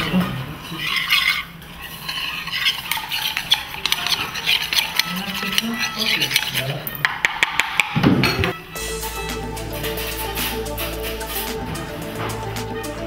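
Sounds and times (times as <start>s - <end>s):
metal spatula scraping metal bowl: 0.0s - 7.0s.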